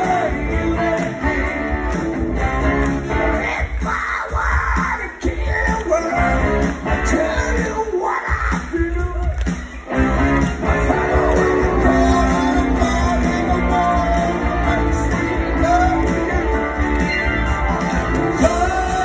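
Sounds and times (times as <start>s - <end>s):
person singing: 0.0s - 2.0s, 10.8s - 16.8s, 18.2s - 19.0s
live rock band: 0.0s - 19.0s.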